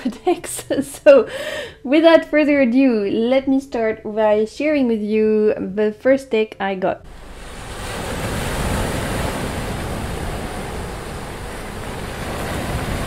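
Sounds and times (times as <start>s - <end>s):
ocean wave washing in: 7.1s - 13.0s.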